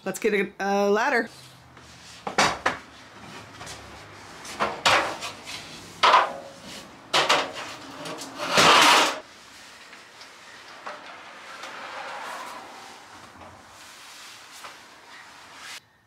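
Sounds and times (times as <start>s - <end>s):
stepladder scraping: 2.0s - 15.8s
metal stepladder clanking: 4.6s - 9.2s.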